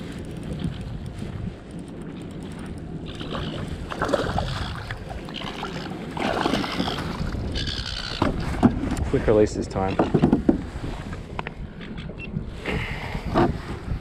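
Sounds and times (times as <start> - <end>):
fish thrashing water splashing: 3.2 - 7.8.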